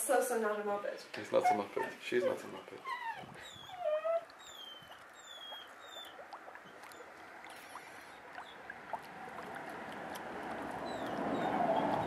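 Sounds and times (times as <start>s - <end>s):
water-like bubbling and gurgling: 2.8s - 12.0s.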